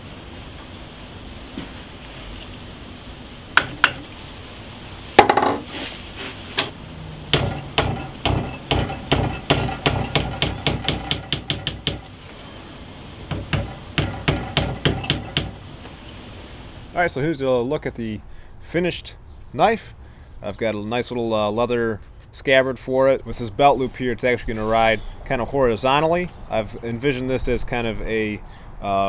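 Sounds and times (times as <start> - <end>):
small metal hammer tapping: 7.3 - 12.1, 13.3 - 15.6.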